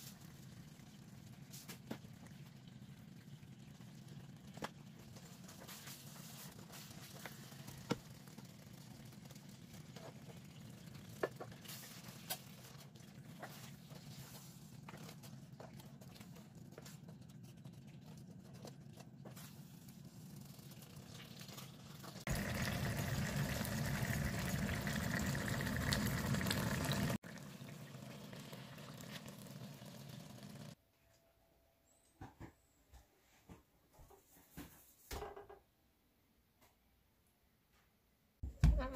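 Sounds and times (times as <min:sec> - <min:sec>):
sauce simmering and sputtering: 0:00.0 - 0:19.0, 0:20.0 - 0:30.8.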